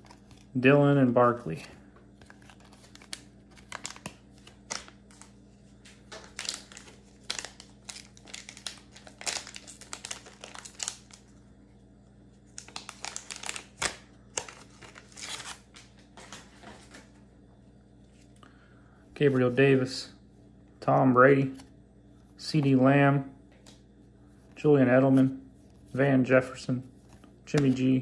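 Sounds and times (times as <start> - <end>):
plastic wrapper crinkling and tearing: 2.2 - 5.3, 6.1 - 11.4, 12.5 - 15.8.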